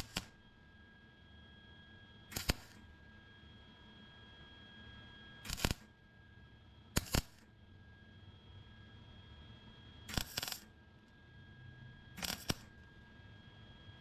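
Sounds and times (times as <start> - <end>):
welder arc bursts: 0.0 - 0.3, 2.3 - 2.8, 5.4 - 5.9, 7.0 - 7.5, 10.1 - 10.7, 12.2 - 12.7.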